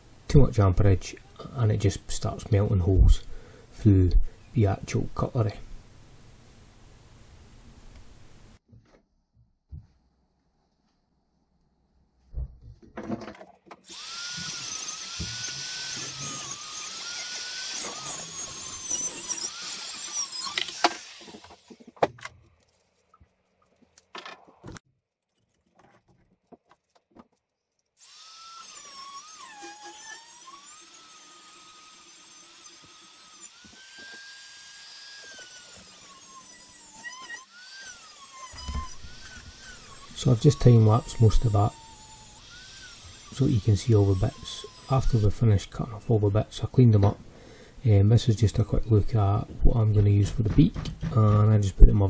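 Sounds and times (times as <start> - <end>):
rotary tool cutting metal: 13.8 - 21.9, 28.0 - 45.6
clicks and knocks: 50.3 - 51.4.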